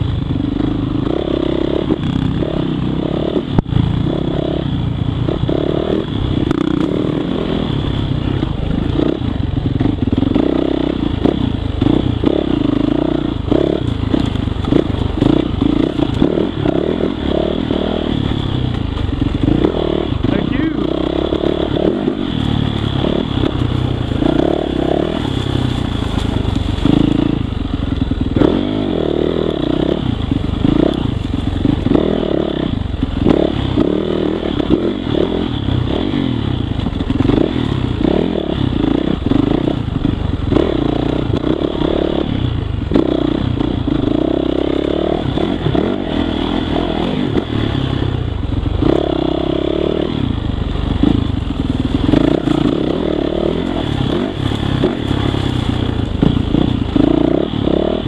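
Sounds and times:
motorcycle engine revving: 0.0s - 58.0s
bike rattling and knocking: 6.3s - 42.0s, 50.4s - 57.9s.

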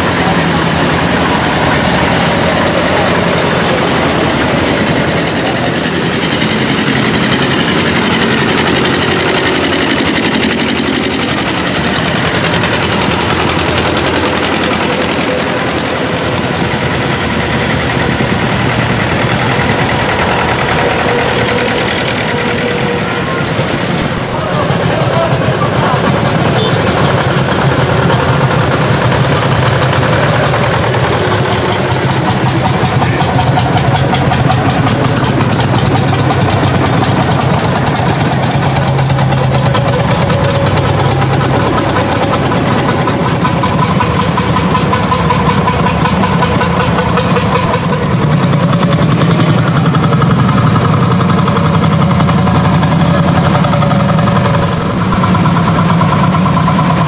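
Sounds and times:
tractor engines droning: 0.0s - 57.0s.

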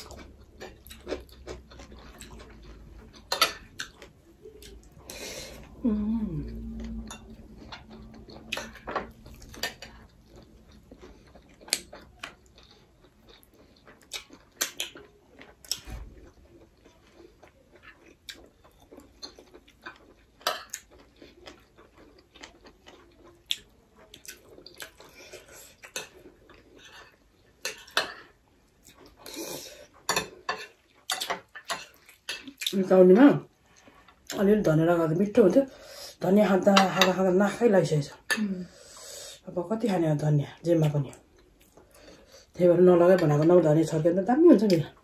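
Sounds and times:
chewing: 0.0s - 32.8s.

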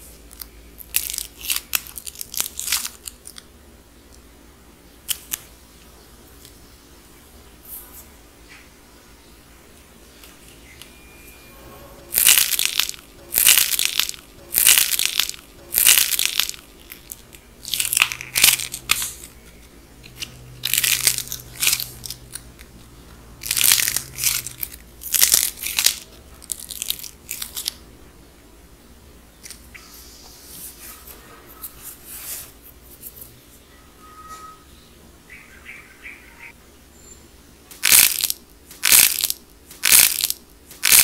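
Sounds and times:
dried clay crust crunching: 12.1s - 22.7s, 23.4s - 27.8s, 37.7s - 41.0s.

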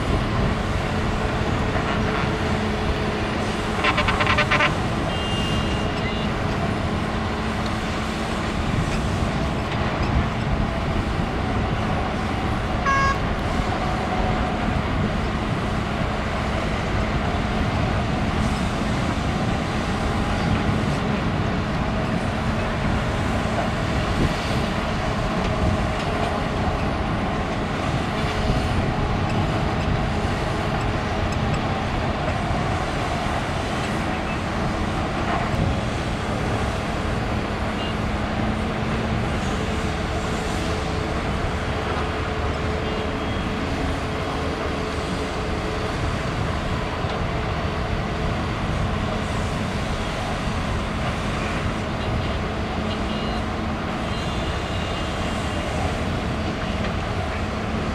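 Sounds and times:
excavator engine and hydraulics: 0.0s - 57.9s
trucks idling: 0.0s - 57.9s
short high beep: 12.9s - 13.2s.

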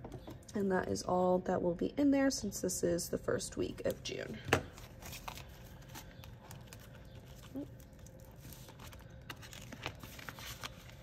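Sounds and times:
banknotes rustling: 4.7s - 11.0s
vinyl envelope crinkling: 4.7s - 11.0s.

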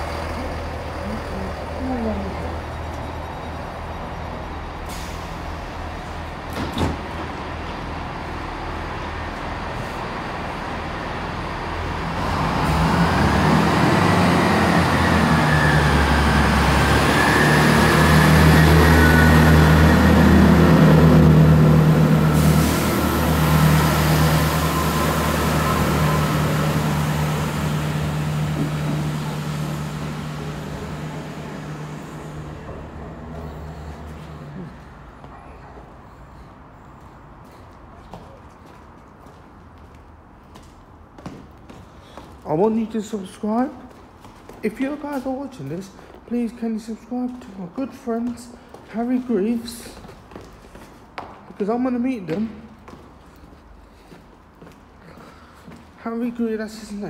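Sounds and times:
diesel train engine whine: 0.0s - 37.6s.

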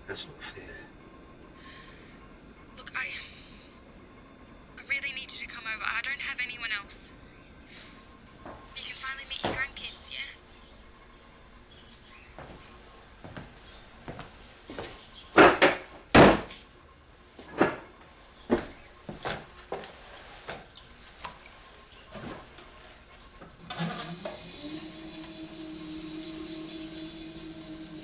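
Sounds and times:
potter's wheel motor whine: 23.2s - 28.0s.

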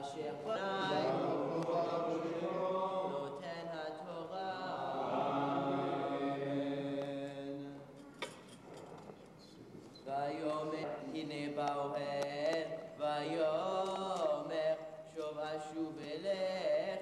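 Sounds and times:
man chanting: 10.1s - 17.0s.

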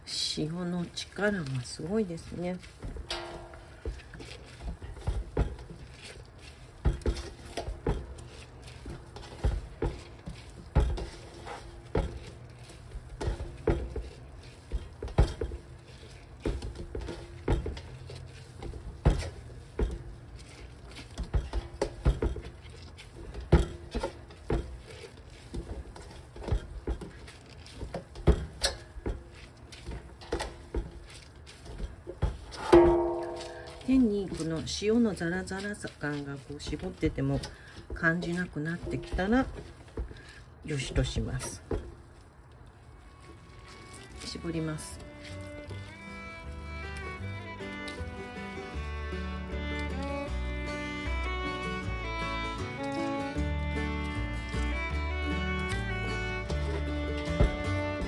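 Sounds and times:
hands kneading wet leaves: 0.0s - 3.0s, 3.6s - 21.5s, 24.1s - 28.2s, 33.3s - 45.9s
knocks against metal tub: 32.6s - 34.0s.

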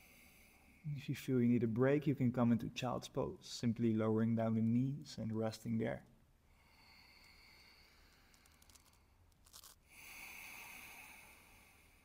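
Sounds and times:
soft throaty breathing: 0.0s - 0.9s, 6.4s - 12.0s.

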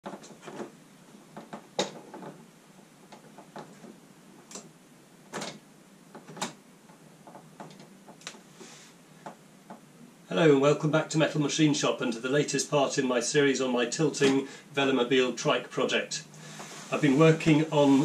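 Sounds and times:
clicks and light knocks: 5.3s - 8.4s.

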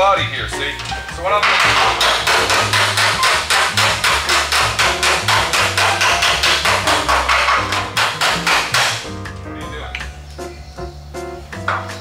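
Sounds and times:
hammer striking sheet metal: 1.4s - 9.1s.

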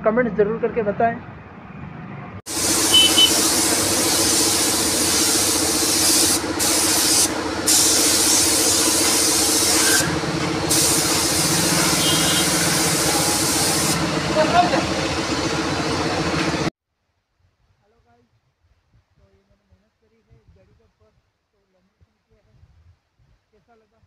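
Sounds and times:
spray gun hissing: 2.5s - 14.1s.

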